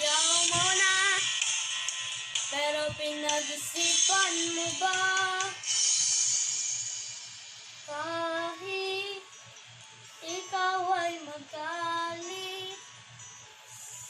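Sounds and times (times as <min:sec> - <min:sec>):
child singing wordless melody: 0:00.0 - 0:01.4, 0:02.4 - 0:05.6, 0:07.9 - 0:09.3, 0:10.2 - 0:12.9
faint pop backing track: 0:00.0 - 0:14.0.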